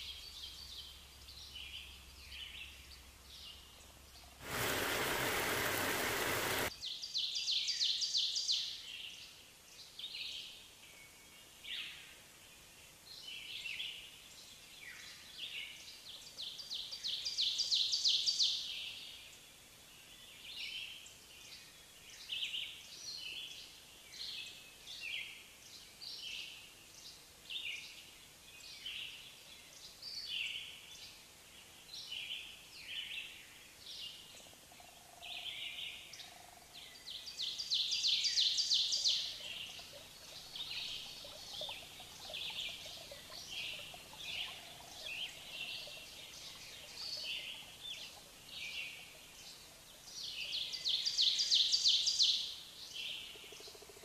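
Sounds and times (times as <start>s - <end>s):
bird chirping: 34.0s - 54.0s.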